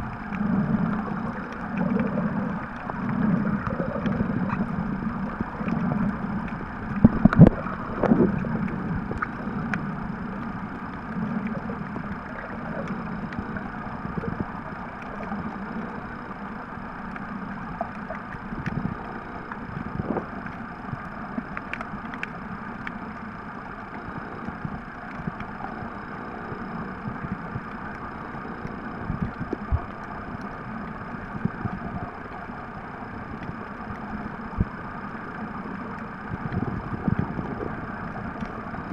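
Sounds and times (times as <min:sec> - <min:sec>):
underwater water rumble: 0:00.0 - 0:38.9
small clicks: 0:17.0 - 0:25.8.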